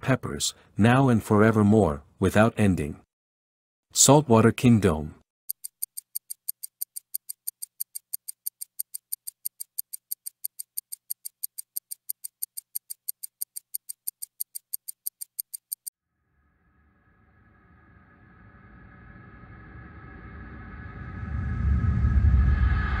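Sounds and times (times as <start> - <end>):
rapid high-pitched ticking: 5.5 - 15.9.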